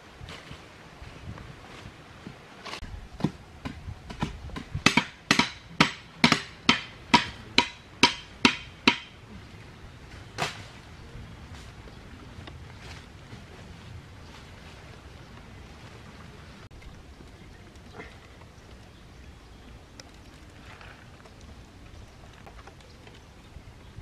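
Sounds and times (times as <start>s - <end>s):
digging tool striking hard ground: 3.2s - 9.2s.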